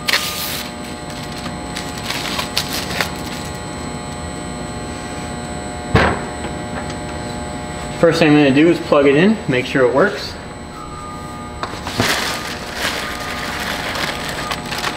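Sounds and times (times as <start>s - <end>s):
plastic film crinkling: 0.0s - 3.7s, 11.7s - 14.9s
steady background hum: 0.0s - 14.9s
oven door knock: 5.9s - 6.4s.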